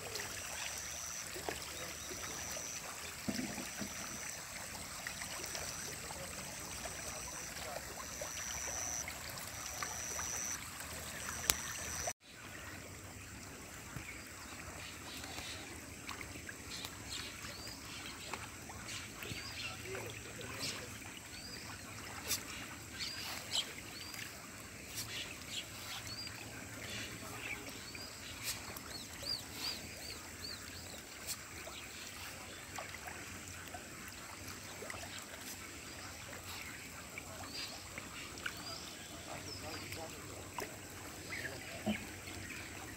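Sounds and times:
soft hiss of outdoor ambience: 0.0 - 42.9
faint clicks: 11.2 - 12.1.

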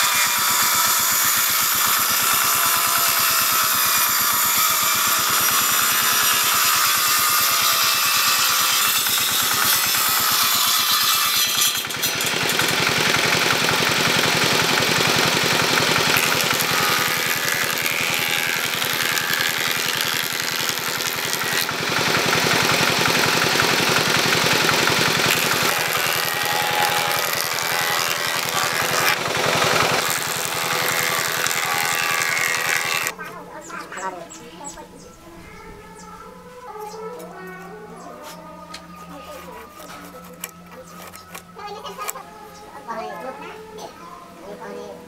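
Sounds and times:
table saw ripping wood: 0.0 - 33.2, 39.3 - 42.1.

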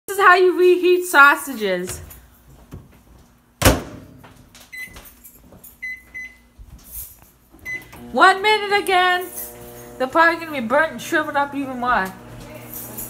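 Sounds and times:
short keypad beeps: 5.8 - 6.4
microwave oven humming: 7.6 - 13.0.

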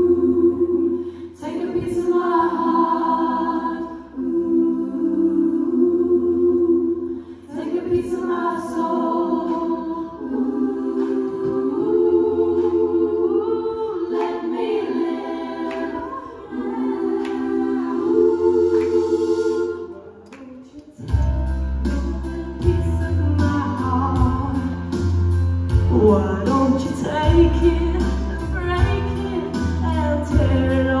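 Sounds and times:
vocal group singing a cappella: 0.0 - 20.3, 20.9 - 31.0
low instrumental backing: 21.0 - 31.0.

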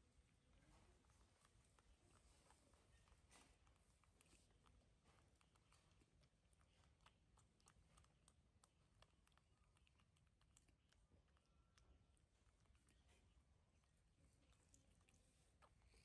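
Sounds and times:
monkeys chewing fruit: 0.6 - 16.0.

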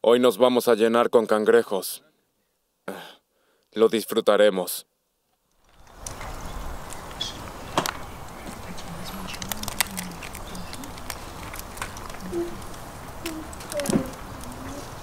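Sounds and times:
crayfish shells cracking: 5.6 - 14.8
chewing: 8.2 - 15.0.

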